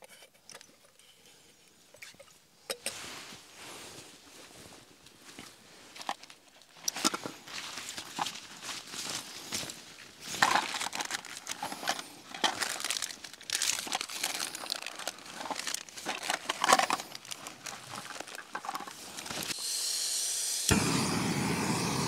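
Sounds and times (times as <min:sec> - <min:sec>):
fabric bag rustling: 0:07.4 - 0:19.5
steady hiss: 0:18.9 - 0:22.0.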